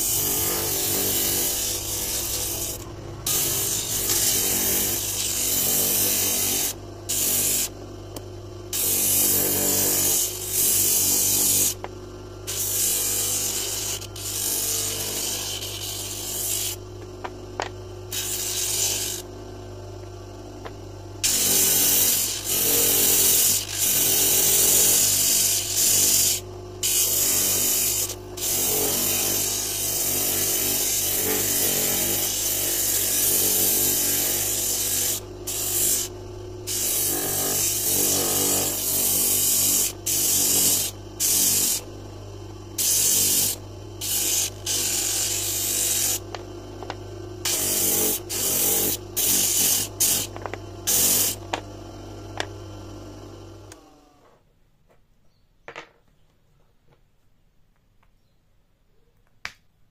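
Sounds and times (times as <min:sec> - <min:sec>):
wood hissing on disc sander: 0:00.0 - 0:07.8, 0:17.6 - 0:19.3, 0:21.2 - 0:41.9, 0:42.8 - 0:51.6
sander motor hum: 0:00.0 - 0:54.3.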